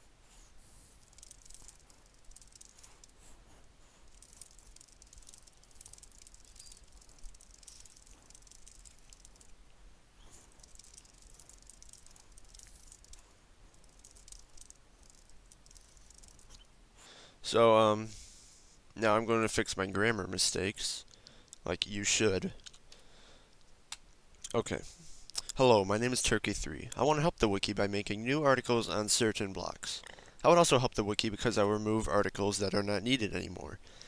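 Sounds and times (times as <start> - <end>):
keyboard typing: 1.0 - 3.1, 4.0 - 9.5, 10.4 - 16.6.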